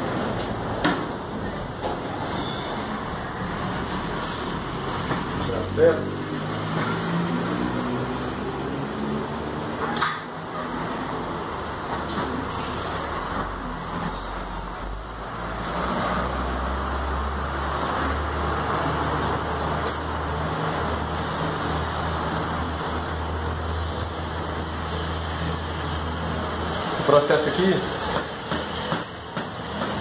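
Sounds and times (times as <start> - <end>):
road traffic rumble: 0.0 - 30.0
vehicle passing: 2.1 - 9.9.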